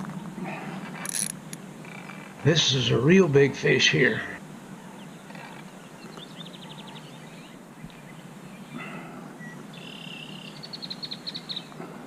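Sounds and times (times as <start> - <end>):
birds trilling: 0.0 - 12.0
distant traffic hum: 0.0 - 12.0.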